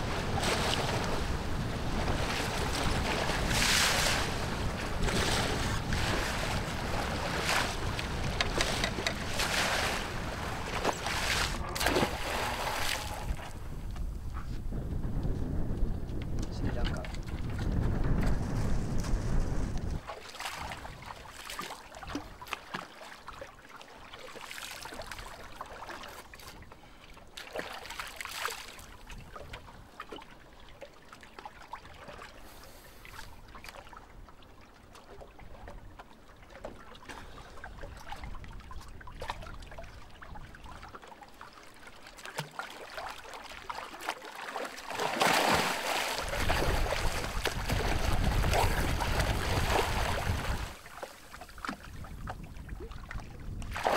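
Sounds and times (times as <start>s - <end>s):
swimmer splashing: 0.0s - 13.6s, 42.2s - 51.6s
water lapping against boat: 0.0s - 14.6s, 16.4s - 53.9s.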